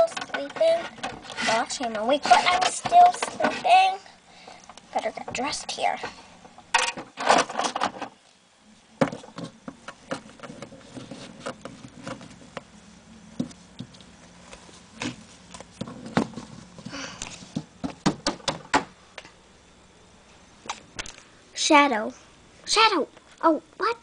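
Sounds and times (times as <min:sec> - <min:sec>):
plastic toys clicking and tapping: 0:00.0 - 0:03.7.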